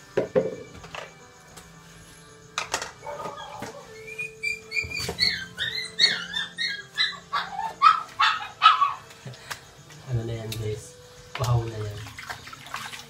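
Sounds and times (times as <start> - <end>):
background music: 0.0 - 13.0
dog whining and yelping: 3.0 - 9.1.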